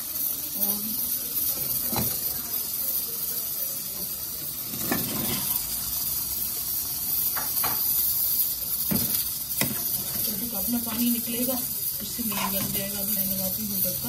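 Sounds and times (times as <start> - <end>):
sizzling hiss: 0.0 - 14.0
food clattering into pot: 4.7 - 5.7
ladle clicking on metal pot: 8.9 - 10.3.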